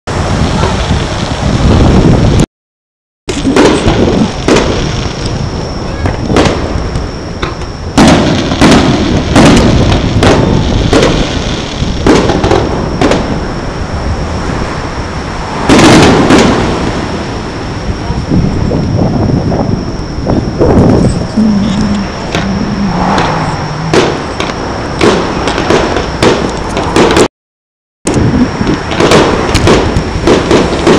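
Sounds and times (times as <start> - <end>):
firework shells booming: 3.3 - 13.5, 15.4 - 17.7, 21.4 - 27.3, 28.1 - 30.9.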